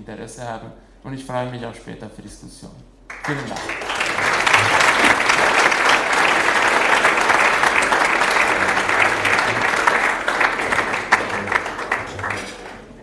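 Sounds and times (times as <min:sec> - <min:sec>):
audience applauding: 0:03.1 - 0:13.0.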